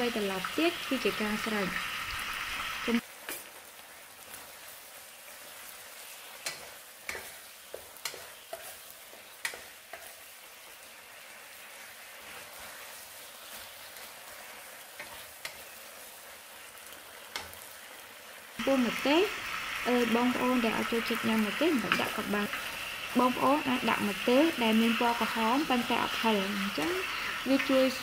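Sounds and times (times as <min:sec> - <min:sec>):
vegetables sizzling in a wok: 0:00.0 - 0:28.0
spatula tapping and scraping pan: 0:06.3 - 0:10.3, 0:14.9 - 0:15.8, 0:17.2 - 0:17.6.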